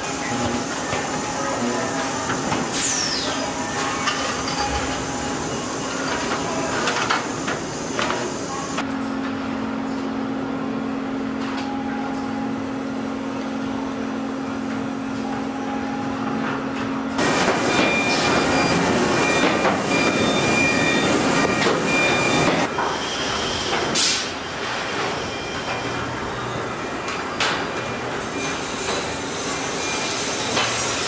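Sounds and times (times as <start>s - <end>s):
high machine whine: 0.0s - 8.8s
busy mechanical noise: 0.0s - 31.0s.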